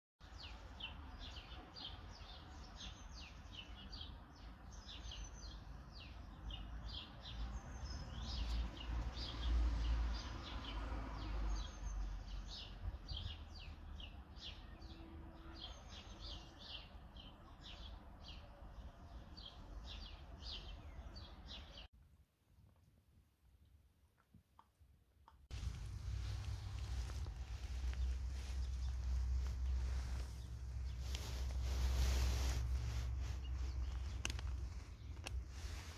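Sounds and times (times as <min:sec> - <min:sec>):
songbirds chirping: 0:00.2 - 0:21.9, 0:25.5 - 0:35.9
low rumble: 0:25.5 - 0:35.9.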